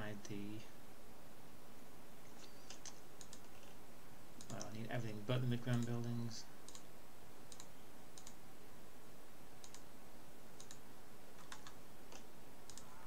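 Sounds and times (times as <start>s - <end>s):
faint steady hiss: 0.0s - 13.0s
computer mouse clicking: 2.3s - 3.8s, 4.4s - 4.8s, 5.7s - 6.9s, 7.5s - 8.4s, 9.6s - 9.9s, 10.6s - 10.8s, 11.4s - 13.0s.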